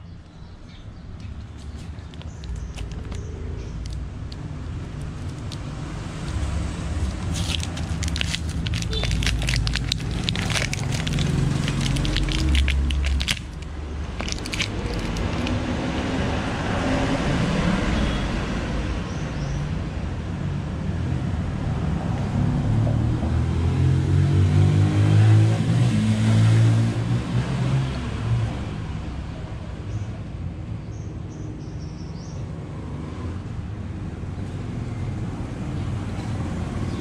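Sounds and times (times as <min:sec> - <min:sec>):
vehicle engine rumbling: 0:01.3 - 0:16.8.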